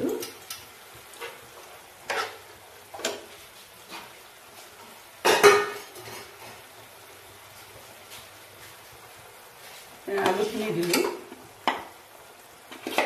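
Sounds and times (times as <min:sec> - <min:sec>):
spatula scraping frying pan: 0:01.1 - 0:04.2, 0:05.4 - 0:06.7.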